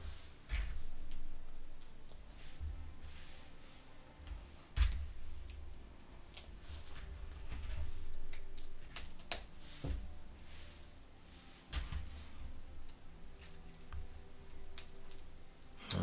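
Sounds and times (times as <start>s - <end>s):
plastic pieces clicking together: 4.8s - 9.5s, 12.8s - 16.0s.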